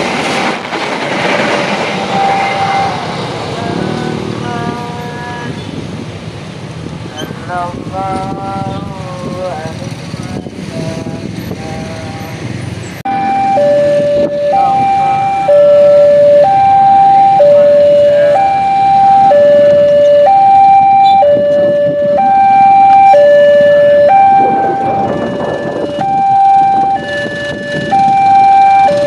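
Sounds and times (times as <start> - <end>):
level crossing two-tone alarm: 2.1 - 3.0, 13.1 - 29.0.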